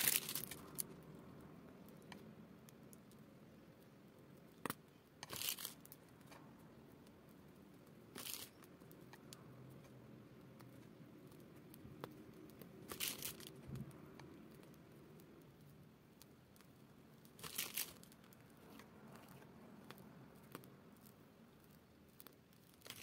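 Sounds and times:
plastic piping bag crinkling: 0.0 - 1.0, 5.2 - 6.0, 8.1 - 8.7, 12.8 - 13.8, 17.3 - 19.4, 20.4 - 23.0.

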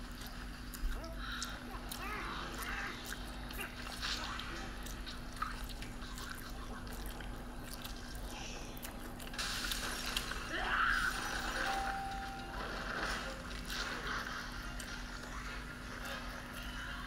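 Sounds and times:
chewing: 0.0 - 10.5
faint tv audio: 0.0 - 17.0.

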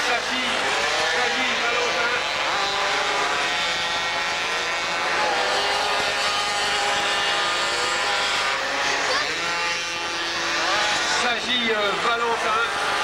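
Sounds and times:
moped engines racing: 0.0 - 13.0.

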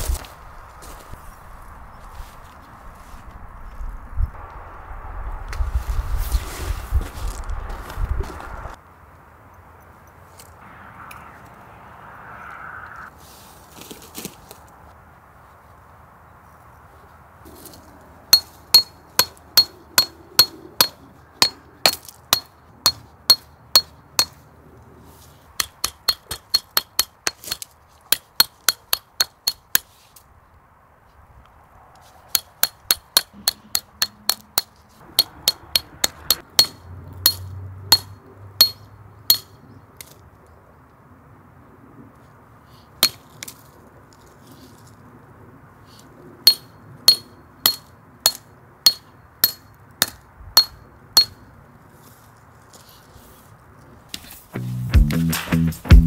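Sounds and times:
hammer striking metal tent peg: 18.4 - 24.4, 25.6 - 29.9, 32.4 - 39.6, 46.5 - 51.4.

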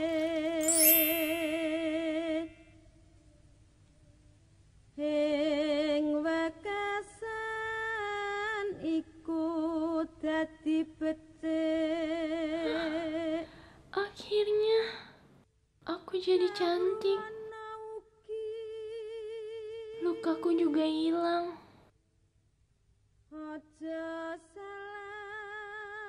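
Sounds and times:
woman singing with vibrato: 12.6 - 13.5.

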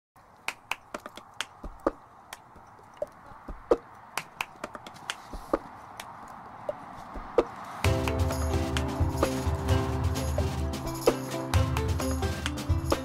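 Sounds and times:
hoofbeats on hard dirt: 0.9 - 11.1.

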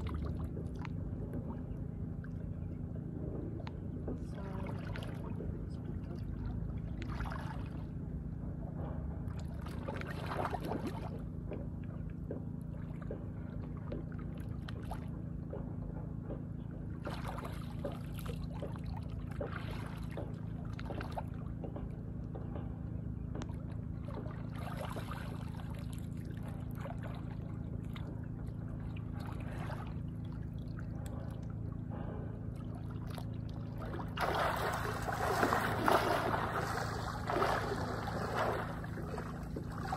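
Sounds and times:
low hum: 0.0 - 39.9
water splashing and sloshing: 0.0 - 39.9
rush of water: 34.2 - 39.9.

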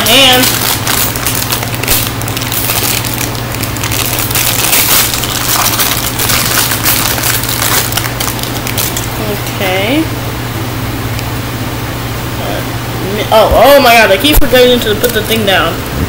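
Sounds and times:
plastic packaging crinkling: 0.0 - 9.4
fan humming: 0.0 - 16.0.

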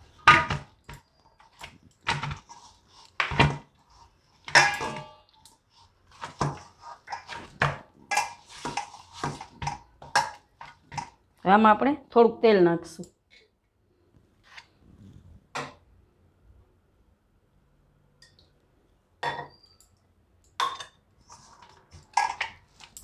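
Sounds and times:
dough kneaded in a metal bowl: 0.0 - 11.8, 21.0 - 23.0.

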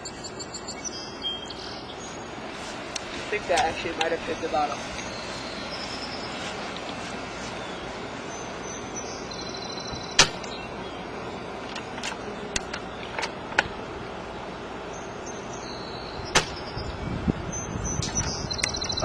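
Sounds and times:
background hum: 0.0 - 19.0
airsoft rifle shot crack: 10.2 - 10.5, 16.3 - 16.6.

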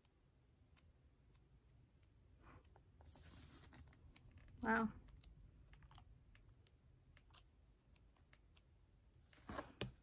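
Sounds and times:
book pages turning: 3.0 - 4.5.

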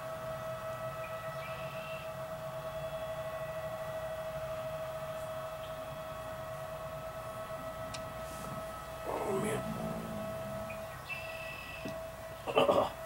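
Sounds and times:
siren-like machine whine: 0.0 - 13.0
low rumble: 8.0 - 12.4.

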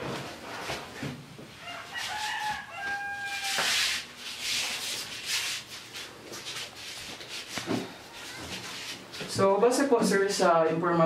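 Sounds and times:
rooster crowing: 1.6 - 4.0.

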